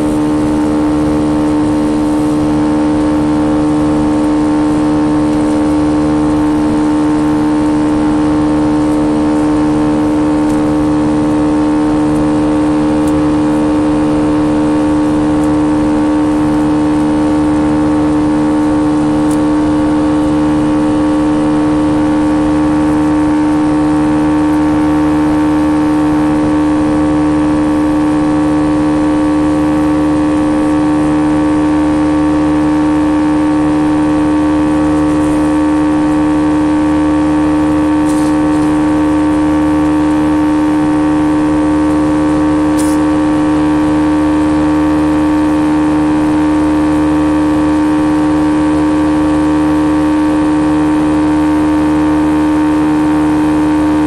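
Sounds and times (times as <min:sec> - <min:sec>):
jet engines droning in cabin: 0:00.0 - 0:54.0.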